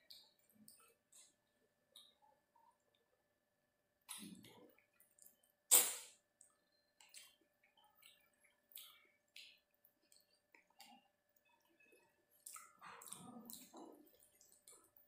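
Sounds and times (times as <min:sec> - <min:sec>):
wet mouth eating sounds: 0:04.1 - 0:15.0.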